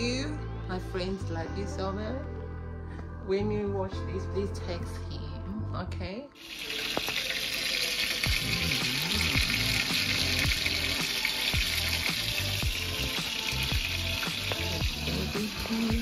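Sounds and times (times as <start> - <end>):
chicken sizzling in a skillet: 6.4 - 16.0.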